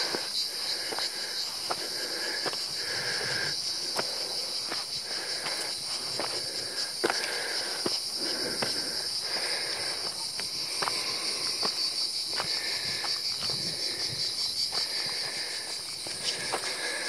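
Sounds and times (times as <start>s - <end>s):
footsteps on stony dirt path: 0.0s - 17.0s
insects trilling chorus: 0.0s - 17.0s.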